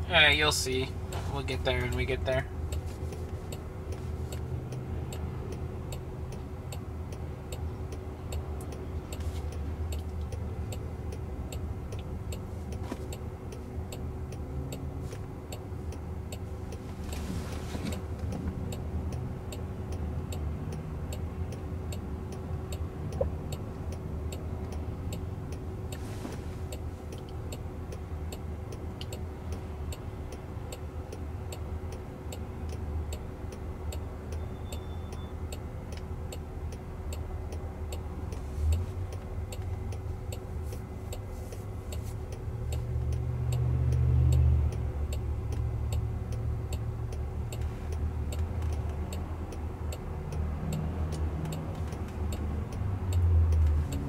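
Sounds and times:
traffic and cabin hum: 0:00.0 - 0:54.0
turn signal clicking: 0:00.5 - 0:54.0.

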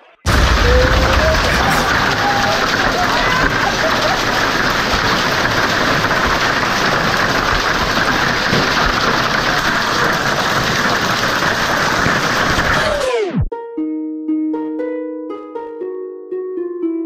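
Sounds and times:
hail falling on decking: 0:00.3 - 0:13.0.

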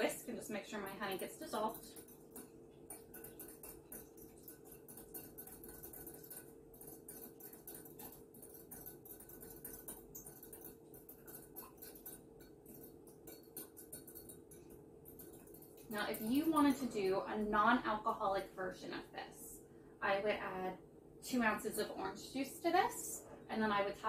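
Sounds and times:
whisk clicking in a cup: 0:00.0 - 0:16.8
faint steady hum: 0:00.0 - 0:24.0.

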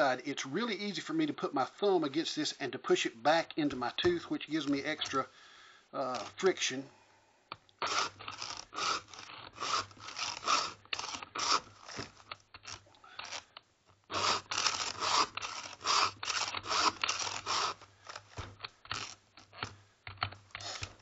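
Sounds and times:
files rasping on chainsaw chain: 0:07.8 - 0:13.5, 0:14.1 - 0:18.3, 0:20.6 - 0:21.0.

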